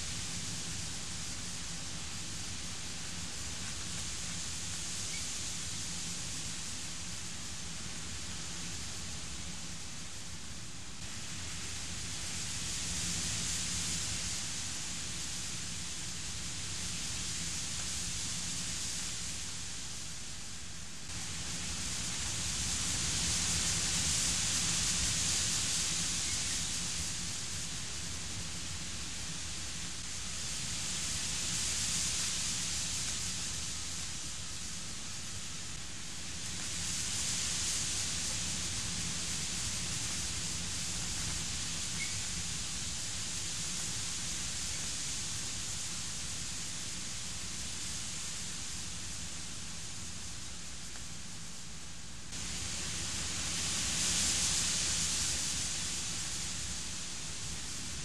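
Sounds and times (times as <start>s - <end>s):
wind: 0.0s - 58.0s
heavy rain: 52.4s - 58.0s.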